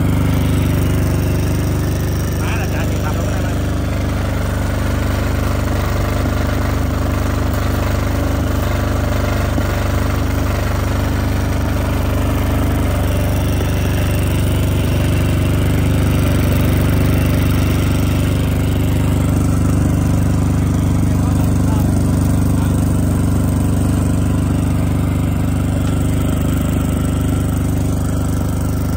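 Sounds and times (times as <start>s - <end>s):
diesel generator running: 0.0s - 28.9s
welding arc hiss and crackle: 0.1s - 26.8s.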